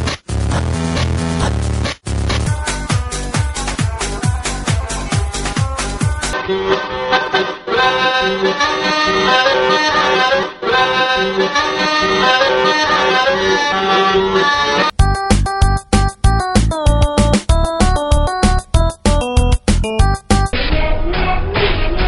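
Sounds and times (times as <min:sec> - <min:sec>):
music with heavy beat: 0:00.0 - 0:06.4, 0:15.0 - 0:20.6
accordion folk music: 0:02.5 - 0:20.6.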